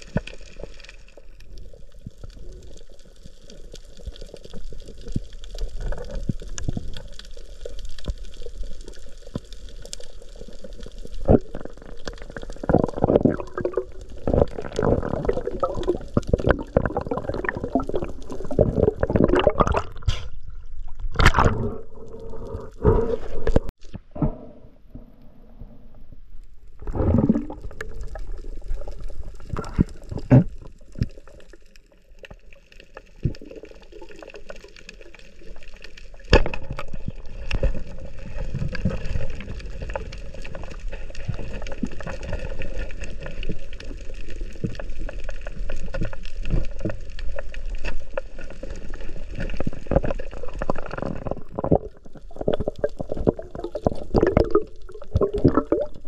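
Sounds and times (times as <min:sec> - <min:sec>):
water gurgling and sloshing: 0:10.2 - 0:32.0, 0:33.0 - 0:56.0.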